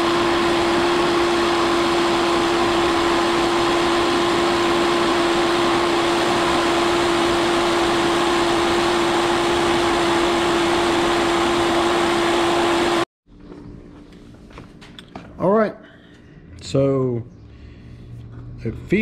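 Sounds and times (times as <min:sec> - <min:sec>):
milling machine humming: 0:00.0 - 0:13.1.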